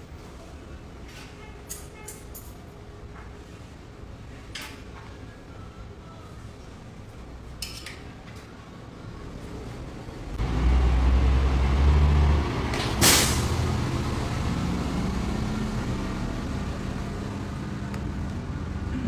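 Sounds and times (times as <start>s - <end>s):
short loud air hiss: 13.0s - 13.6s.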